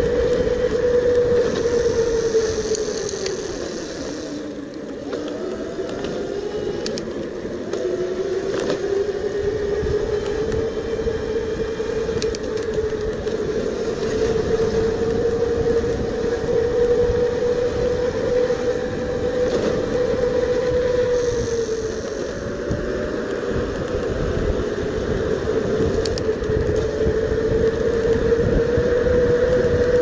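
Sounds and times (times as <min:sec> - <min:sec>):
electric bike motor whining: 0:00.0 - 0:30.0
wind rush and tyre noise: 0:00.0 - 0:30.0.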